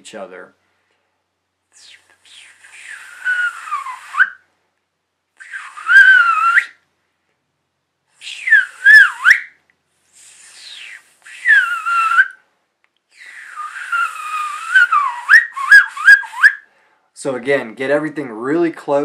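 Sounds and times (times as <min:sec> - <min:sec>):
man whistling loudly: 0:01.8 - 0:04.4, 0:05.4 - 0:06.8, 0:08.2 - 0:09.6, 0:10.2 - 0:12.4, 0:13.2 - 0:16.6.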